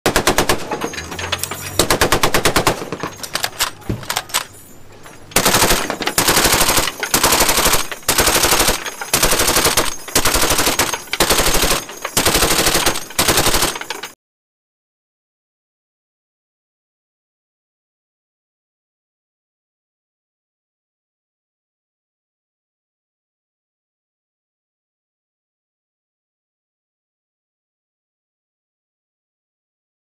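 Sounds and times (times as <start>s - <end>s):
machine gun firing bursts: 0.0s - 4.5s, 5.4s - 14.2s.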